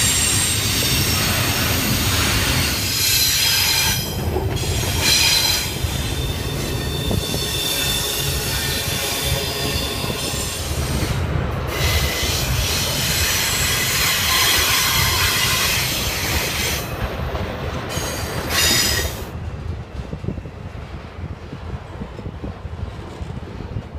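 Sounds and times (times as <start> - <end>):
wheels rumbling on rail: 0.0 - 23.9
high-pitched wheel squeal: 4.7 - 10.7, 11.8 - 16.8.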